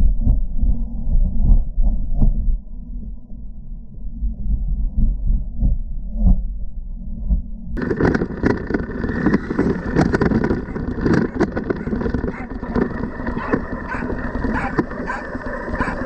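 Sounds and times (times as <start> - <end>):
rc car motor and tyres: 7.8 - 16.0
sharp clicks and rattles: 7.8 - 16.0
wind on microphone: 7.8 - 16.0.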